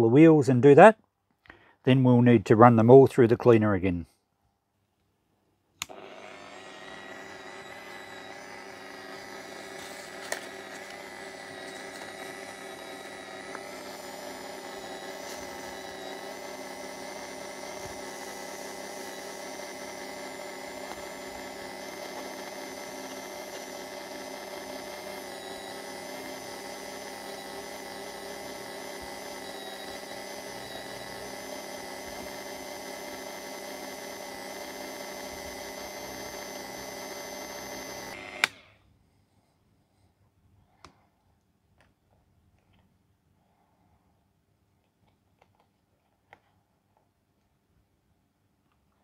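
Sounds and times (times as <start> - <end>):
rotary tool whining: 5.8 - 38.8.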